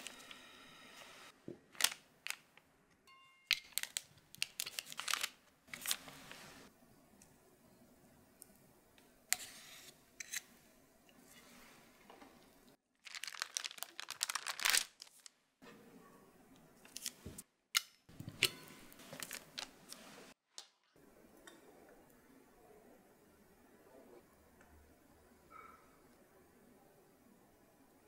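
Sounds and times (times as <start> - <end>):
parchment paper crinkling: 1.7 - 2.6, 3.6 - 6.7, 13.0 - 15.4, 19.0 - 20.6.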